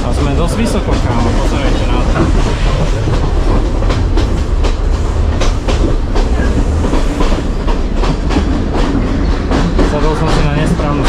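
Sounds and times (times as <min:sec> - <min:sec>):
train carriage low rumble: 0:00.0 - 0:11.0
wheels clacking over rail joints: 0:00.0 - 0:11.0.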